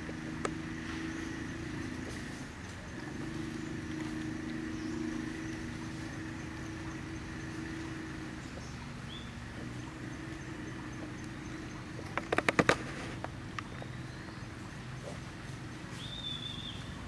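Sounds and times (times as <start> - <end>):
low hum: 0.0 - 17.0
sharp clicks or knocks: 12.1 - 13.3.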